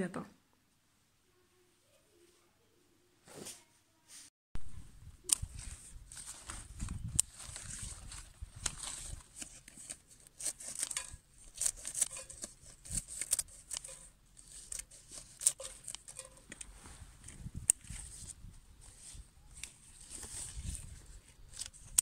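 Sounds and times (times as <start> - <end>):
leaves rustling: 4.9 - 22.0
scissors snipping: 8.6 - 16.4.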